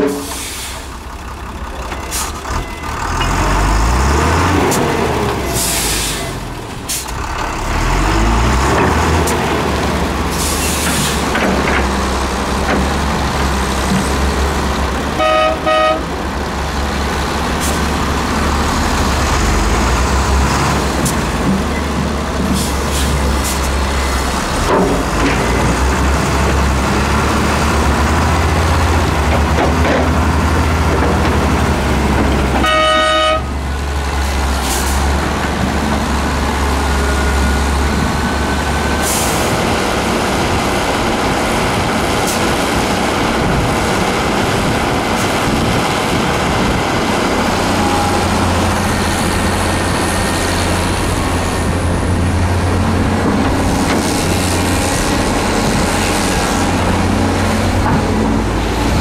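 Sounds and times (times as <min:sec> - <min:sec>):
heavy diesel engines running: 0:00.0 - 0:59.0
short horn toot: 0:15.2 - 0:16.1, 0:32.6 - 0:33.5.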